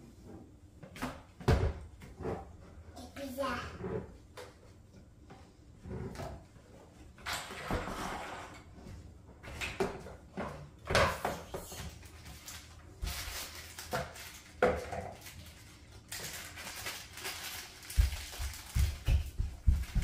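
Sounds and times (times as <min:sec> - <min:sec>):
plastic toy parts clattering: 0:12.2 - 0:18.6.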